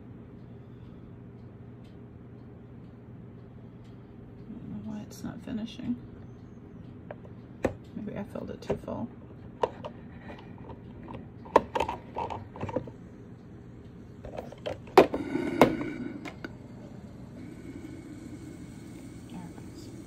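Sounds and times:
faint hum with high tone: 0.0s - 20.0s
plastic clicks and knocks: 10.7s - 12.9s.

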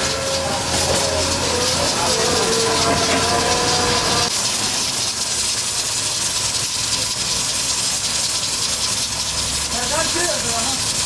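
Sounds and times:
steady pitched tone: 0.0s - 5.9s
gas stove hissing: 0.0s - 11.0s.

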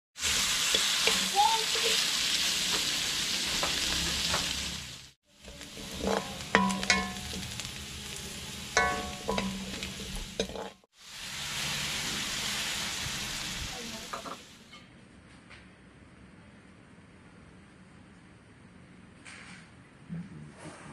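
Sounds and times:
pork chops sizzling in a pan: 0.2s - 14.6s
utensil clinking and scraping pan: 5.4s - 10.9s.

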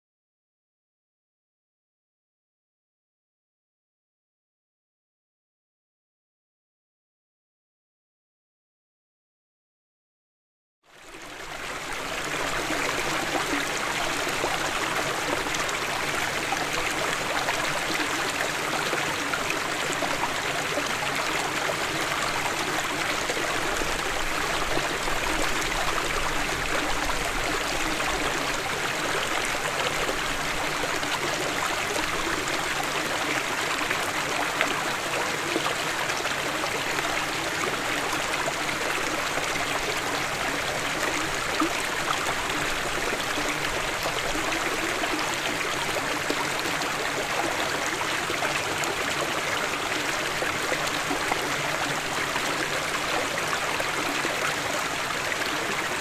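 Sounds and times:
stream splashing over rocks: 11.3s - 56.0s.

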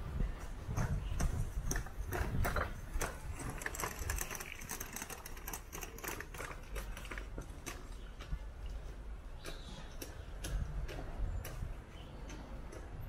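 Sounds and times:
irregular clicks and taps: 9.4s - 13.0s.

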